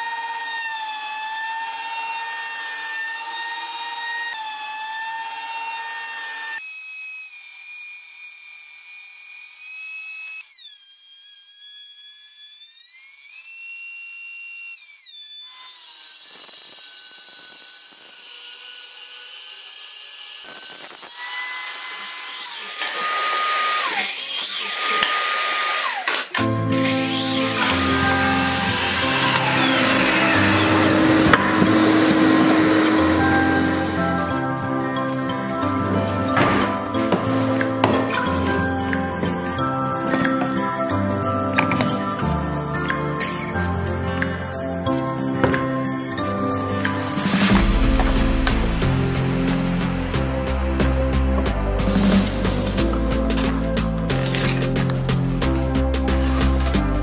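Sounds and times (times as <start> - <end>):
thickness planer motor whine: 0.0 - 53.6
noisy power tool: 0.0 - 57.0.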